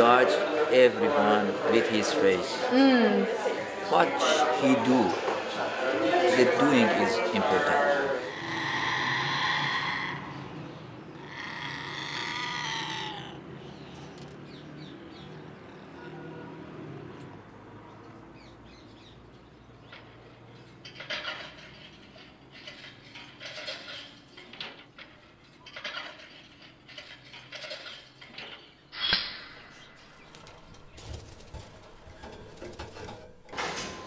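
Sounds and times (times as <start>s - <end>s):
parrot rustling and fluttering: 20.8s - 34.0s.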